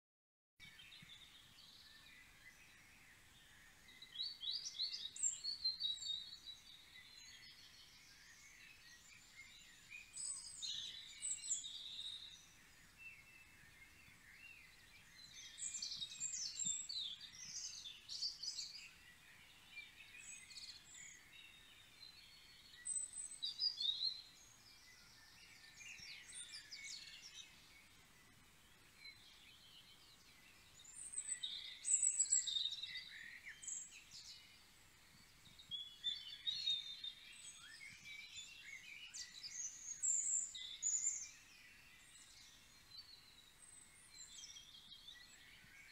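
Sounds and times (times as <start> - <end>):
songbirds twittering: 0.6 - 45.9.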